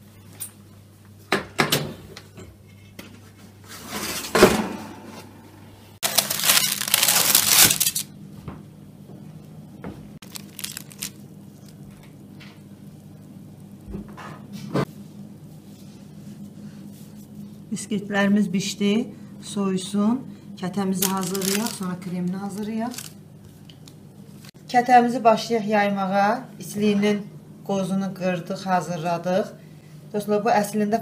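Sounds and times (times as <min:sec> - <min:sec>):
kitchen handling noises: 0:01.3 - 0:05.3, 0:06.0 - 0:08.1.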